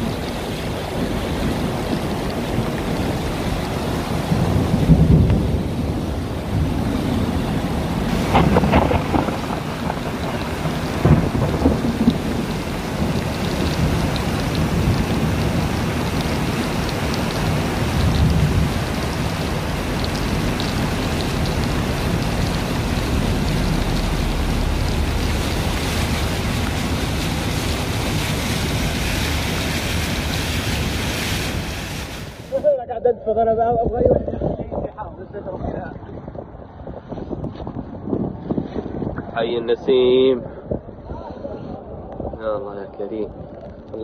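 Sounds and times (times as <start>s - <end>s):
flood water rushing: 0.0s - 32.8s
heavy rain falling: 0.0s - 32.8s.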